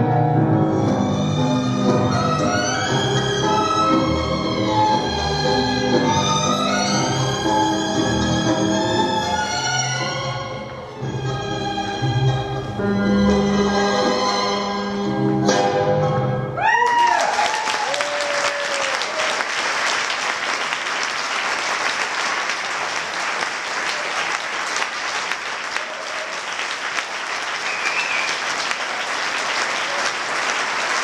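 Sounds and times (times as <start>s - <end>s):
large audience applauding: 16.6s - 31.0s.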